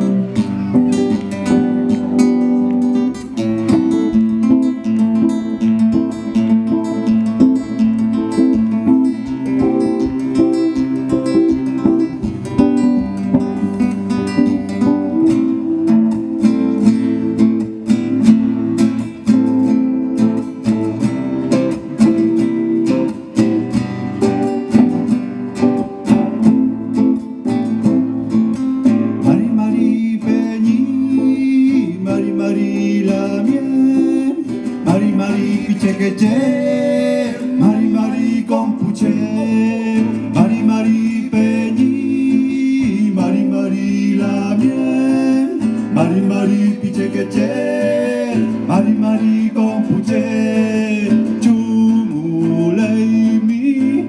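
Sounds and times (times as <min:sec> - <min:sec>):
acoustic guitar strumming: 0:00.0 - 0:54.0
electric guitar: 0:00.0 - 0:54.0
person singing: 0:08.8 - 0:17.8, 0:29.2 - 0:54.0.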